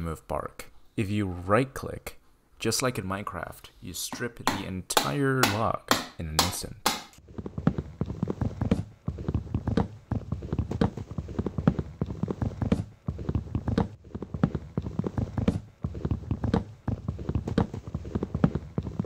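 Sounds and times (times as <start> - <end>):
hammer knocking on chisel: 4.4 - 7.2.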